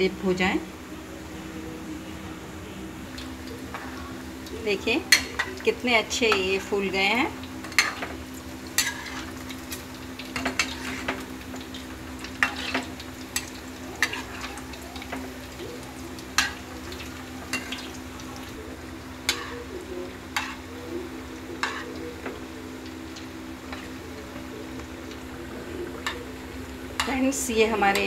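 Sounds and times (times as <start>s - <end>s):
deep-frying sizzle in oil: 1.6s - 28.0s
metal spatula scraping pan: 8.8s - 9.4s, 12.4s - 12.9s.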